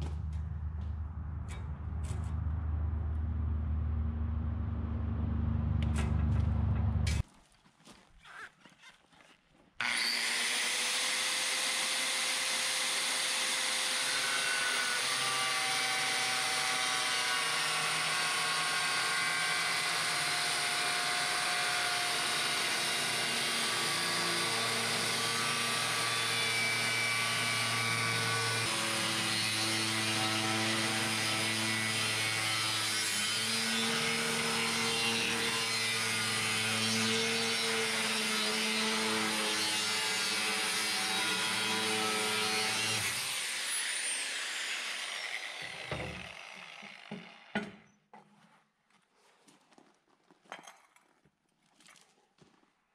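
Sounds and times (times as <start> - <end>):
angle grinder cutting steel: 9.8 - 47.6.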